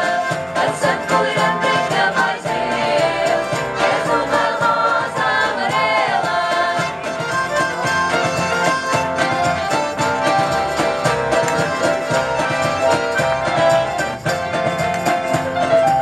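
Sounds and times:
women singing together: 0.0s - 7.1s
accordion: 0.0s - 16.0s
bass guitar: 0.0s - 16.0s
violin: 0.0s - 16.0s.

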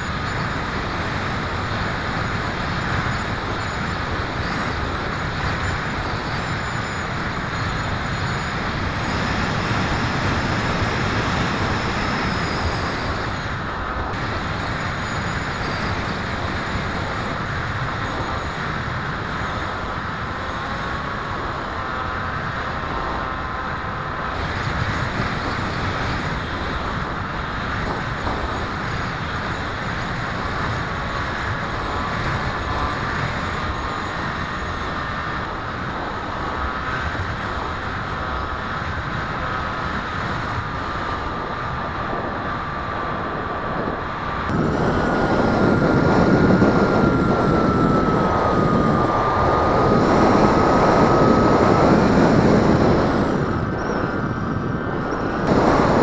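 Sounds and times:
model plane motor whine: 0.0s - 18.5s, 44.5s - 56.0s
wind rushing over microphone: 0.0s - 56.0s.

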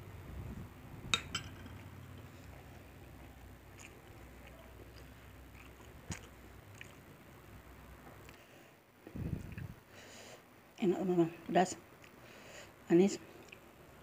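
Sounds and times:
metal spoon clinking on glass bowl: 1.2s - 1.8s
open-mouthed chewing: 2.2s - 7.1s.

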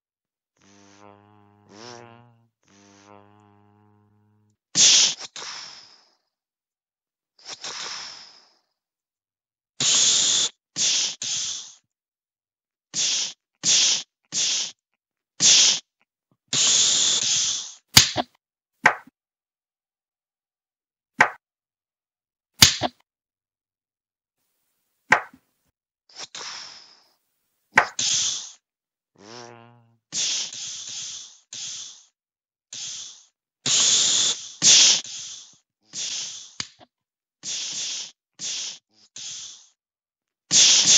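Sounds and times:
short hissing bursts: 0.6s - 3.7s, 4.3s - 6.2s, 7.4s - 8.6s, 9.8s - 11.9s, 12.9s - 14.8s, 15.4s - 15.9s, 16.5s - 18.2s, 26.1s - 27.2s, 27.8s - 28.6s, 29.2s - 39.8s, 40.5s - 40.9s
sharp slaps: 18.0s - 19.1s, 21.2s - 21.4s, 22.6s - 23.0s, 25.1s - 25.4s, 27.8s - 28.1s, 36.6s - 36.9s.

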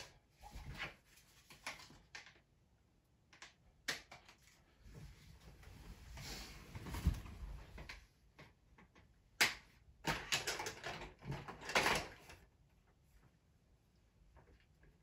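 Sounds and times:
plastic clicks and rattles: 7.8s - 12.4s.

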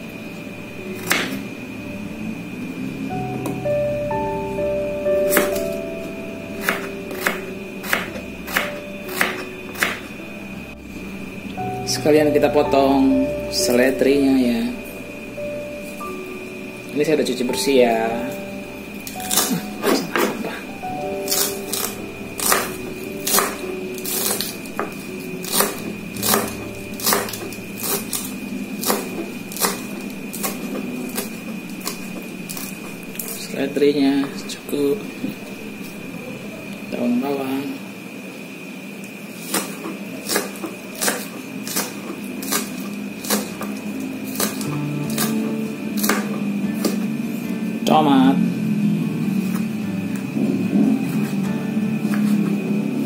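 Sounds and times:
background music: 0.0s - 35.0s, 43.2s - 53.0s
knife chopping on cutting board: 1.0s - 1.4s, 6.6s - 10.0s, 21.3s - 32.7s, 39.4s - 45.4s, 46.0s - 47.0s.

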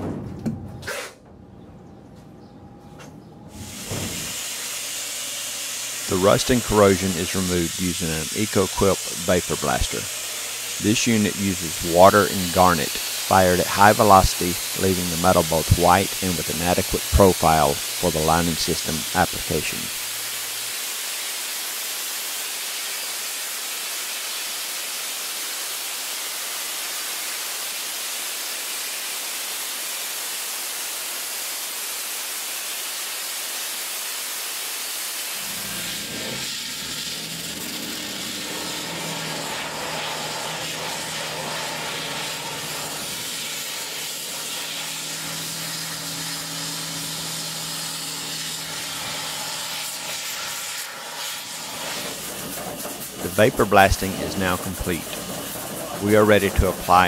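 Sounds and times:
low machine hum: 0.0s - 20.6s
blaster nozzle hissing: 3.5s - 57.0s.

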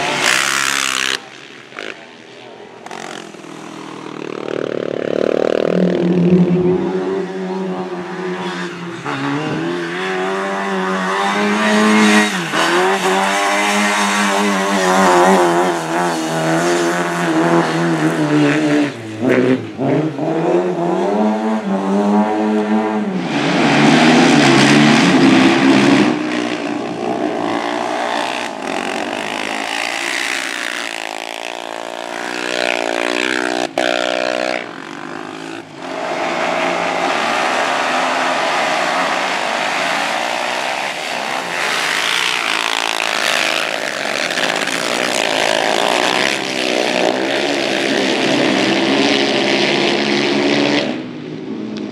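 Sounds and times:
car engine revving: 2.9s - 51.0s.

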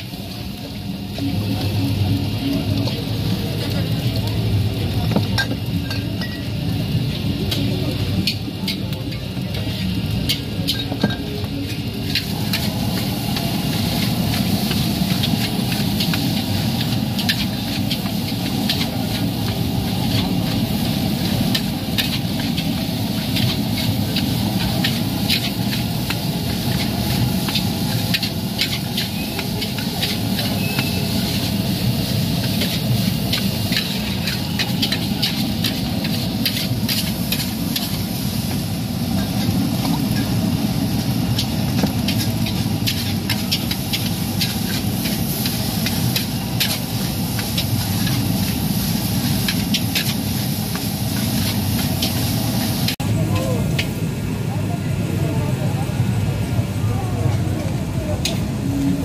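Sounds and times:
spatula scraping a wok: 11.6s - 53.0s.

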